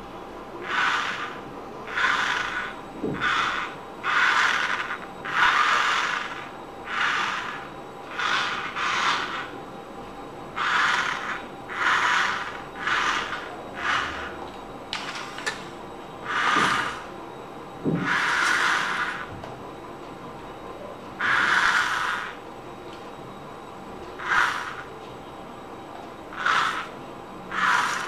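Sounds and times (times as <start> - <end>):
toy motors whirring: 0.6 - 9.6, 10.6 - 14.4, 16.2 - 17.1, 18.0 - 19.3, 21.2 - 22.4, 24.2 - 24.9, 26.3 - 28.0.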